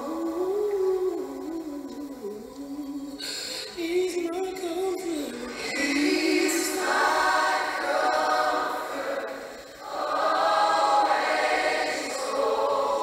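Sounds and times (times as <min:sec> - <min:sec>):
choir singing held phrases: 0:05.4 - 0:13.0.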